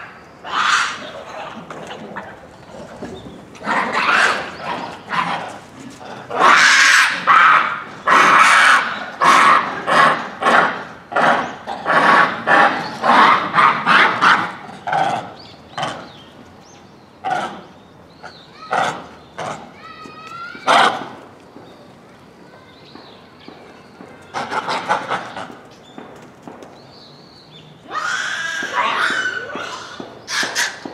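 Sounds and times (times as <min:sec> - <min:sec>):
monkeys calling loudly: 0:00.0 - 0:16.4, 0:24.2 - 0:25.6, 0:27.7 - 0:30.9.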